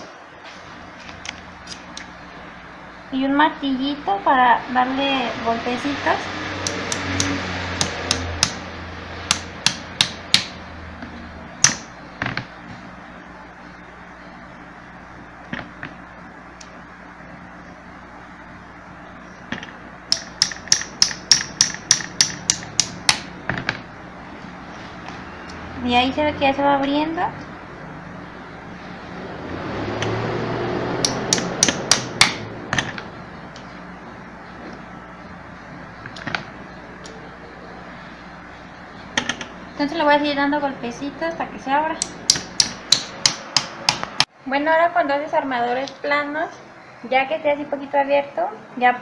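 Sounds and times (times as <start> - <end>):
small hammer tapping blade: 20.1 - 23.2.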